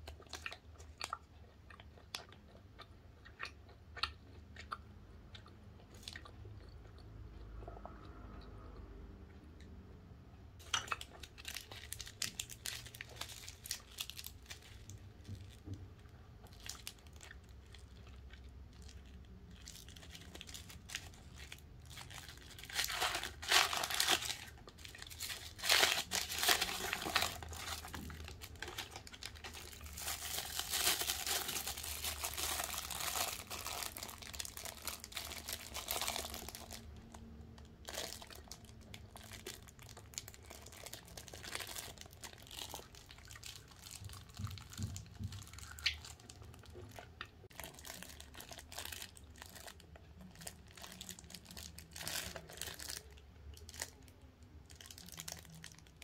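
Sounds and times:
plastic film crinkling: 10.6 - 15.7, 16.5 - 37.2, 37.8 - 46.7, 47.5 - 54.0, 54.7 - 56.0
snack wrappers crinkling: 10.6 - 15.7, 16.4 - 56.0.

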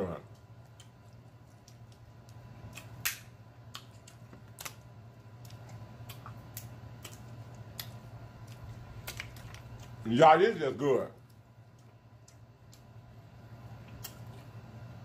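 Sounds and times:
steady low hum: 0.0 - 15.0
shell cracking and clicking: 0.3 - 4.8, 5.4 - 10.0.

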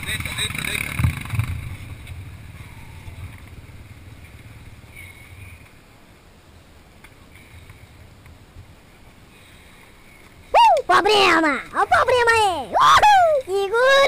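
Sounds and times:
faint low rumble: 0.0 - 10.6.

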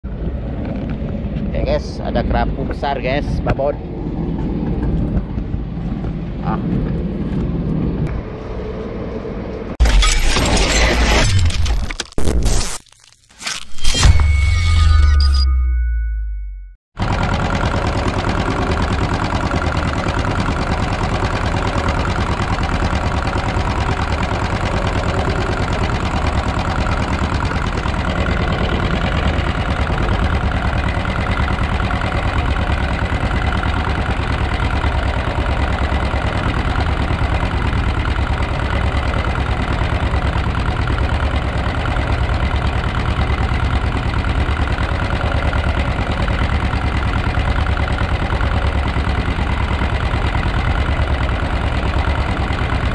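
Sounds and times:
boat engine running: 17.0 - 52.9.

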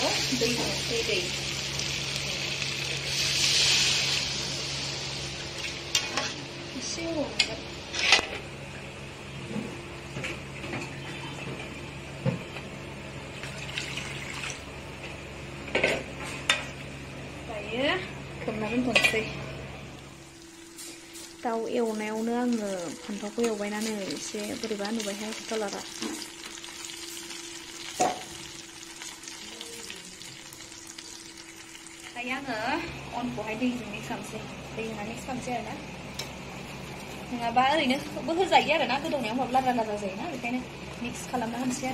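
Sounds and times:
vegetables sizzling in hot oil: 0.0 - 8.1, 19.9 - 41.9
liquid poured into a pot: 13.4 - 14.6
curry simmering in a pot: 24.0 - 32.4.

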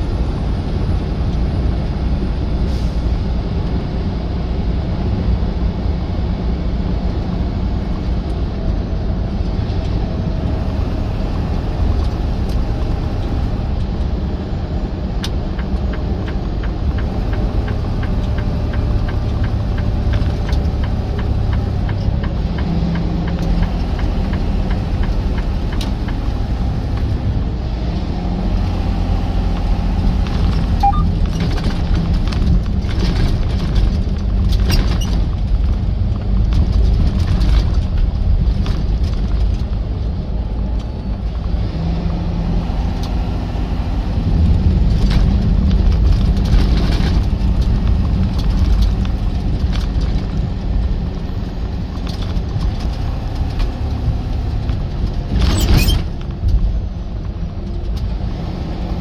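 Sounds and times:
truck engine rumbling: 0.0 - 59.0.

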